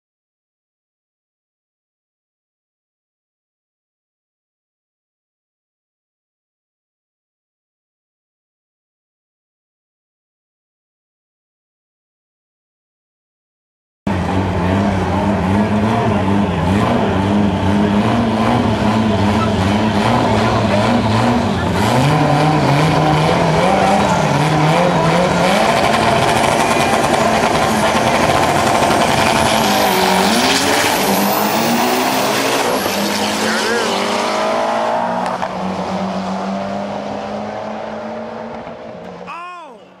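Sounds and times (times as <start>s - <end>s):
drag car engine at full throttle: 14.1s - 39.3s.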